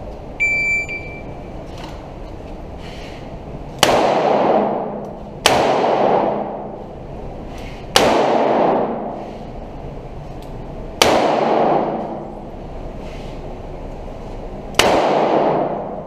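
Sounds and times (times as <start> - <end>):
revolver shots echoing: 14.8 - 16.0.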